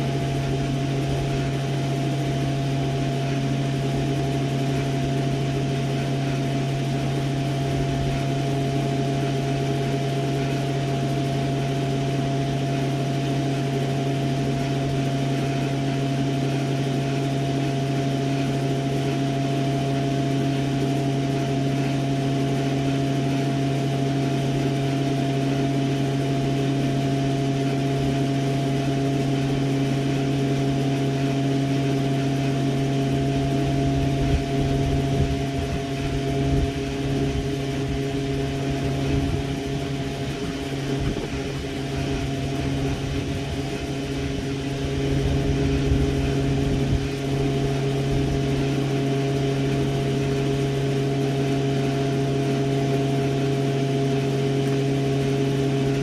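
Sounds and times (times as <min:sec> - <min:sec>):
steady machine hum: 0:00.0 - 0:56.0
uneven low rumbles: 0:33.4 - 0:51.3.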